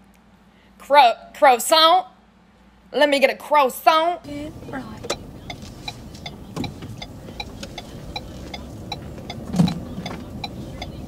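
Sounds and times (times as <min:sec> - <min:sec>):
low car cabin hum: 0:04.2 - 0:11.0
turn signal ticking: 0:04.3 - 0:11.0.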